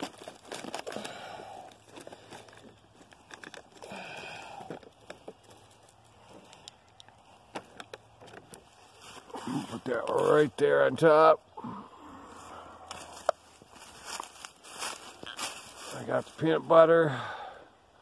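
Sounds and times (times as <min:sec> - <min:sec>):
plastic wrapper crinkling: 0:00.0 - 0:04.0.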